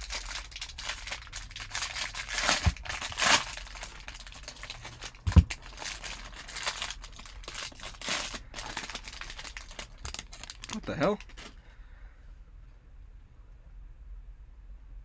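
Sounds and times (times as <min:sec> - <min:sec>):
foil wrapper crinkling: 0:00.0 - 0:11.6
dull thump: 0:05.3 - 0:05.6.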